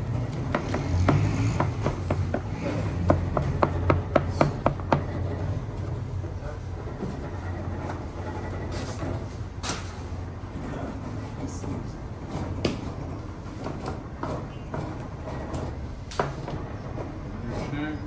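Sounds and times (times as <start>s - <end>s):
trays knocking and clattering: 0.0s - 5.8s.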